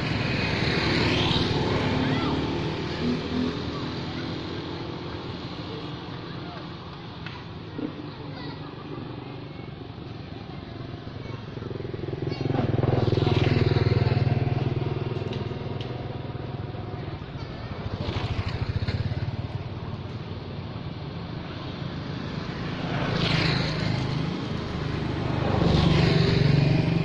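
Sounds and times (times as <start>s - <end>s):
motor vehicles passing: 0.0s - 27.0s.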